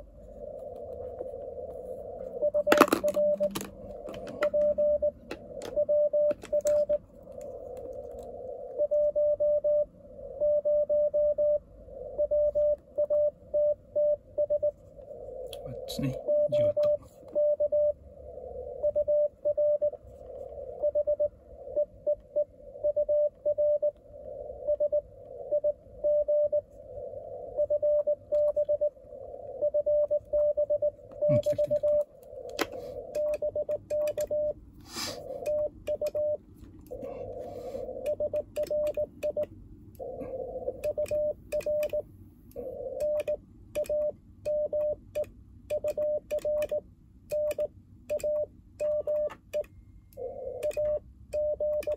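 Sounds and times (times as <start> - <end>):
morse code tone: 2.4 - 7.0, 16.2 - 17.9, 29.6 - 32.0, 35.2 - 42.0, 42.8 - 51.9
radio band hiss: 15.1 - 17.4, 31.2 - 33.2, 34.8 - 35.6, 36.9 - 38.1.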